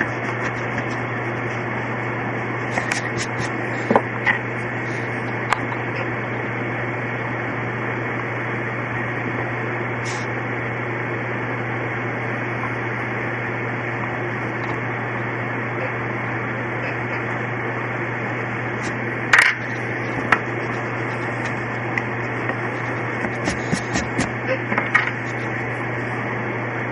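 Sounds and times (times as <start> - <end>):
low hum: 0.0 - 26.9.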